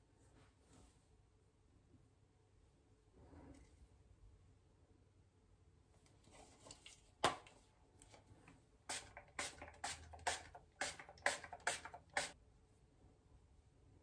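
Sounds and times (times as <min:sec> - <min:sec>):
spray bottle hissing sprays: 0:08.9 - 0:12.4.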